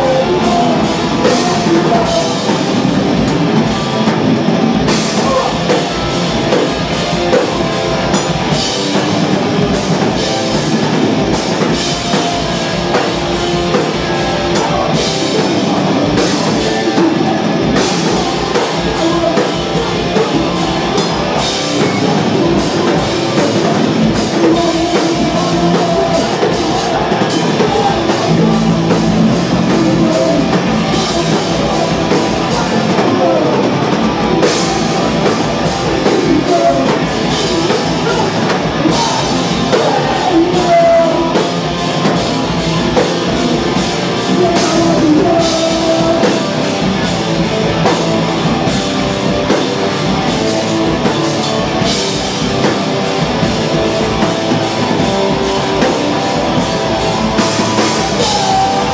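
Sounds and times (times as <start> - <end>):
person singing into a microphone: 0.0 - 3.0, 13.7 - 47.9, 57.2 - 58.9
bass guitar: 0.0 - 58.9
distorted electric guitars: 0.0 - 58.9
drum kit pounding: 0.0 - 58.9.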